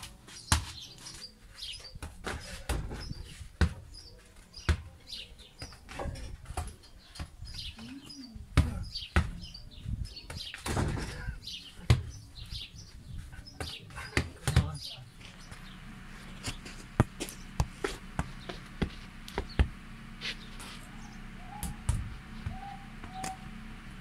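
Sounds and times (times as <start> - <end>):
birds chirping: 0.0 - 24.0
basketball bouncing: 8.6 - 9.4, 13.6 - 14.8, 17.0 - 19.8, 21.6 - 23.4.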